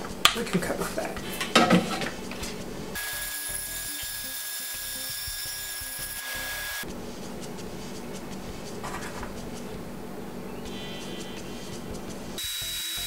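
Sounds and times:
bandsaw cutting plastic pipe: 3.0s - 6.8s
steady high tone: 10.7s - 13.0s.

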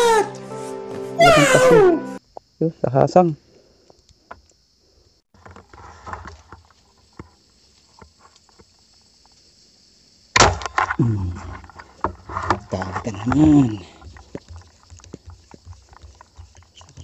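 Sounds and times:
falling voice-like tone: 1.2s - 2.2s
steady high hiss: 5.9s - 10.4s
rustling among plants: 11.1s - 17.0s.

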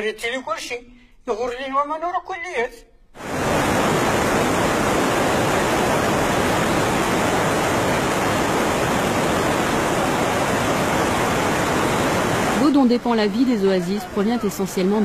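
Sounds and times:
water rushing over rocks: 3.2s - 15.0s.

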